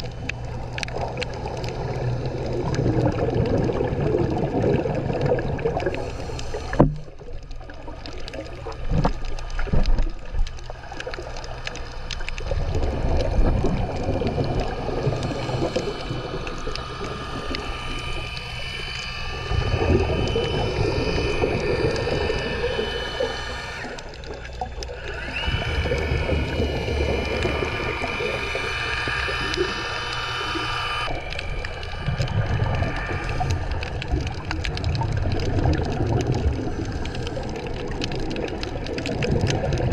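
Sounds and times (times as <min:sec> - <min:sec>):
diver breathing underwater: 0:00.0 - 0:07.3, 0:11.1 - 0:39.9
bubbles rumbling: 0:00.0 - 0:39.9
high whine: 0:08.5 - 0:39.9.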